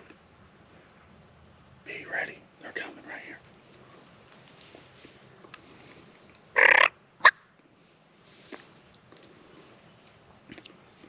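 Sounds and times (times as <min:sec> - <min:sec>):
wild turkey calling: 0:06.5 - 0:07.5.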